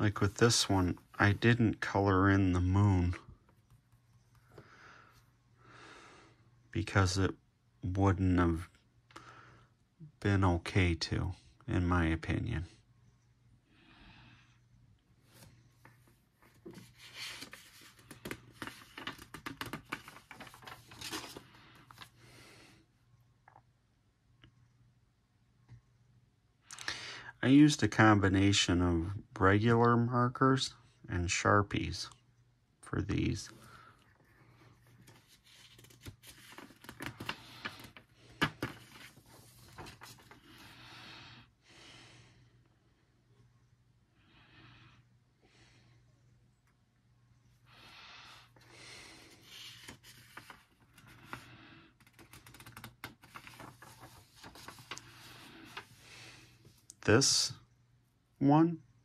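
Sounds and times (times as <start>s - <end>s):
paper rustling and crackling: 15.8s - 22.2s, 34.4s - 40.7s, 49.2s - 56.1s.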